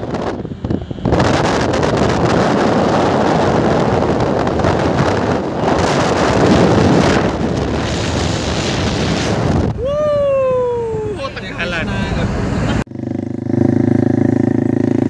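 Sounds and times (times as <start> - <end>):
wind buffeting the microphone: 0.0 - 12.8
vehicle road noise: 0.0 - 15.0.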